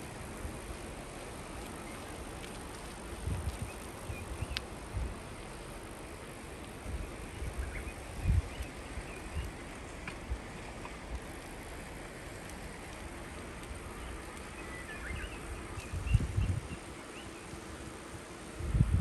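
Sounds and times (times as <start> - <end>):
wind buffeting microphone: 3.0 - 5.4, 6.7 - 9.6, 13.6 - 17.7, 18.4 - 19.0.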